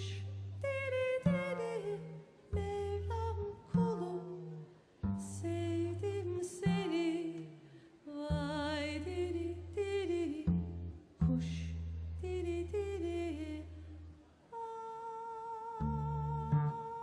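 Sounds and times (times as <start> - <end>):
woman singing with vibrato: 0.0 - 11.6, 12.2 - 13.8, 14.5 - 17.0
deep bass notes: 15.8 - 17.0.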